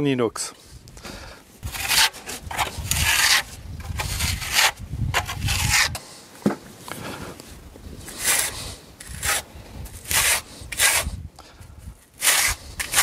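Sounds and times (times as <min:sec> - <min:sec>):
steel float scraping render: 0:01.6 - 0:06.0, 0:08.0 - 0:11.2, 0:12.2 - 0:13.0.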